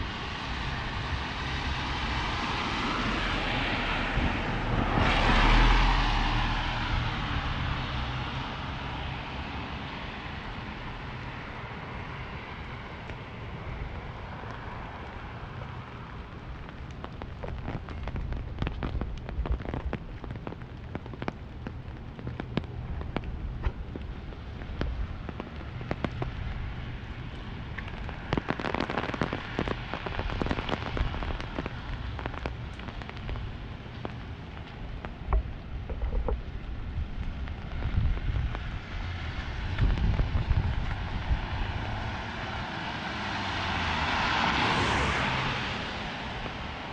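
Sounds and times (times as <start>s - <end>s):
tyre hiss on wet street: 0.0s - 35.8s, 36.4s - 46.9s
steady rain hiss: 0.0s - 46.9s
raindrops tapping on umbrella: 12.0s - 46.9s.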